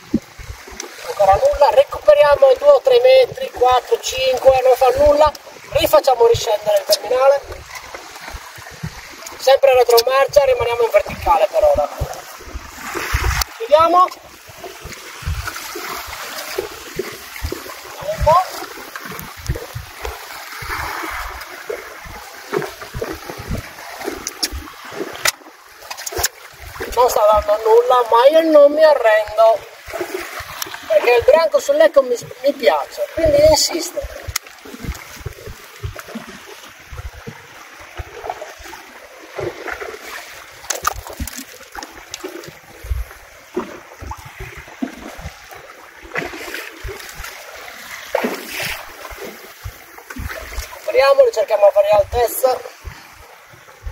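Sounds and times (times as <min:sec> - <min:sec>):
water lapping against boat hull: 0:00.0 - 0:53.9
low thumps: 0:14.8 - 0:15.7.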